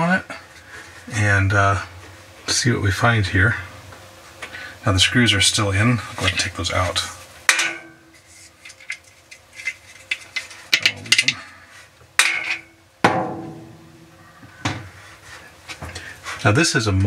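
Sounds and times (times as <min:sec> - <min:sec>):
plastic parts knocking on metal drum: 0:10.4 - 0:11.4.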